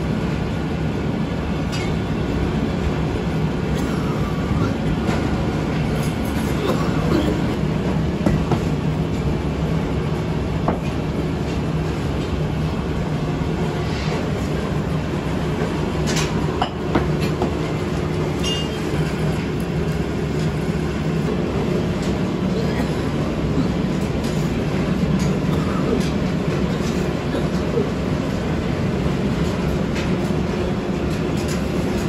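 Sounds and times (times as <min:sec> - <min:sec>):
workshop machinery rumble: 0:00.0 - 0:32.0.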